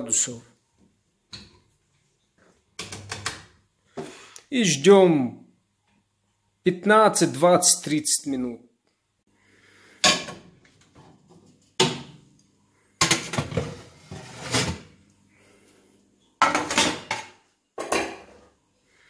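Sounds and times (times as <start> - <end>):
metal baking tray clanking and scraping: 13.0 - 15.0.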